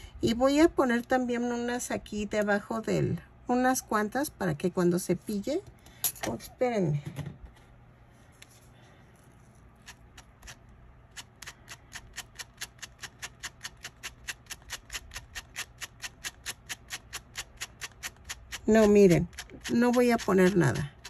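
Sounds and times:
brush stroking yarn: 8.4s - 21.0s.

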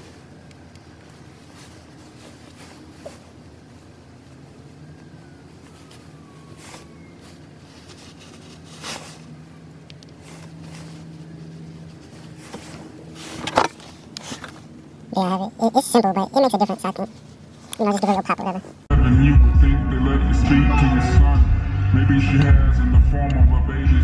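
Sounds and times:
low hum inside car cabin: 0.0s - 24.0s
clothing rustling: 1.0s - 4.8s, 5.4s - 9.5s, 10.1s - 14.8s.

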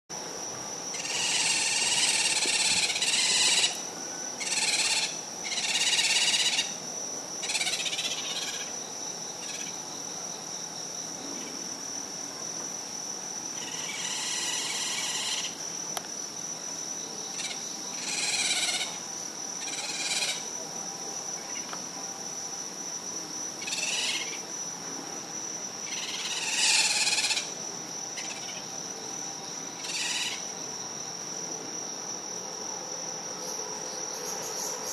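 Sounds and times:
animal trilling calls: 1.0s - 3.8s, 25.9s - 27.6s.

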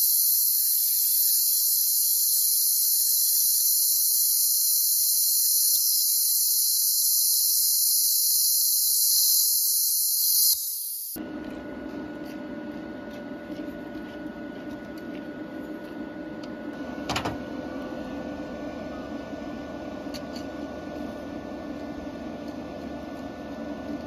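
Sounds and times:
machine humming: 11.2s - 24.0s.

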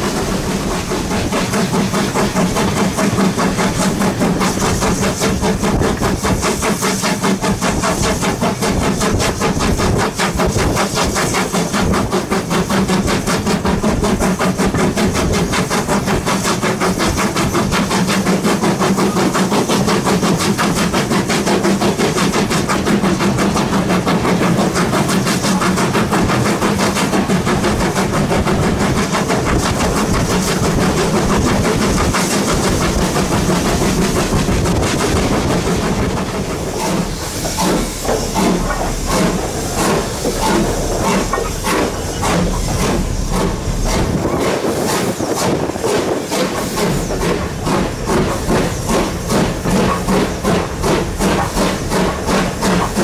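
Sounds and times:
steam hissing: 0.0s - 53.0s
steam locomotive chugging: 0.0s - 53.0s.

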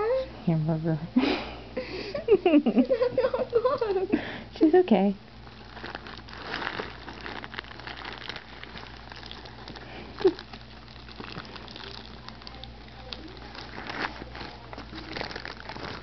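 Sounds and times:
hamster nibbling food: 7.8s - 16.0s.

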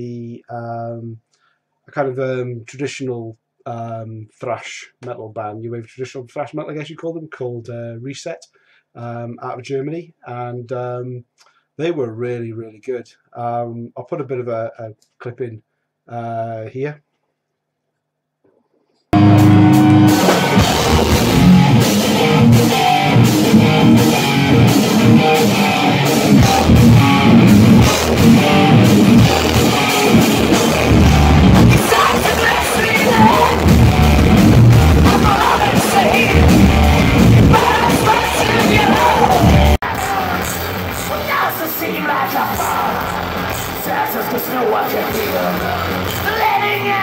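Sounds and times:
live thrash metal band: 19.2s - 46.6s.

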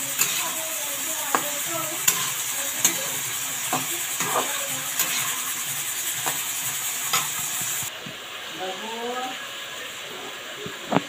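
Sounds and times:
metal spatula scraping pan: 0.0s - 7.9s
vegetables sizzling in oil: 0.0s - 11.0s.

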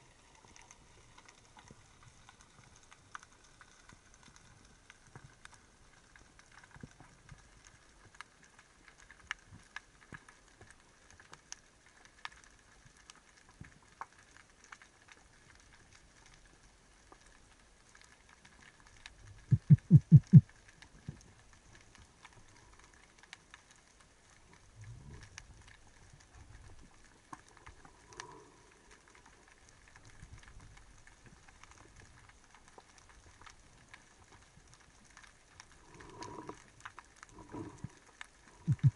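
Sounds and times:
underwater clicks and crackles: 0.0s - 38.9s
low loud thumps: 19.5s - 20.4s.

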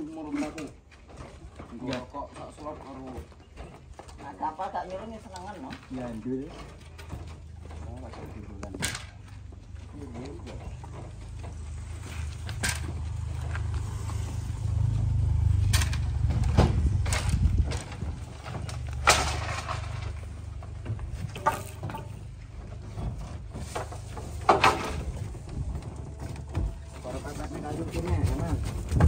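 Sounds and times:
low rumble: 9.5s - 21.4s.

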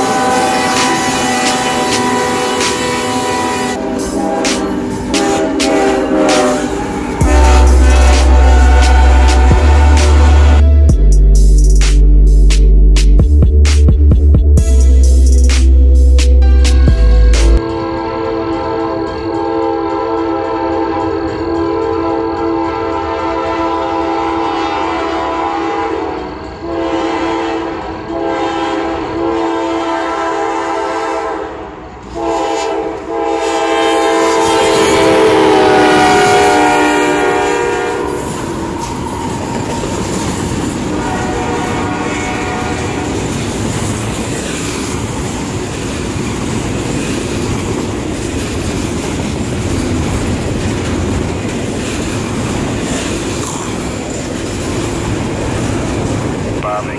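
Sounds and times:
locomotive air horn blasts: 0.0s - 10.9s, 16.4s - 38.6s, 40.8s - 43.4s
train cars rolling by: 0.0s - 10.9s, 31.6s - 56.9s.

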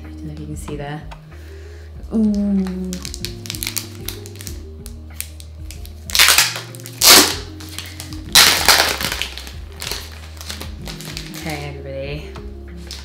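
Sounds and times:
quiet background music: 0.0s - 13.0s
plastic shrink-wrap crinkling and tearing: 2.2s - 11.8s, 12.8s - 13.0s.

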